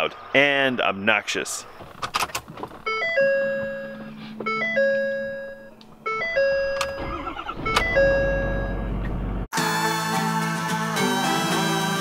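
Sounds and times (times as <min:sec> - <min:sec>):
diesel engine cranking and starting: 0:01.9 - 0:09.5
dashboard warning chime: 0:02.9 - 0:09.1.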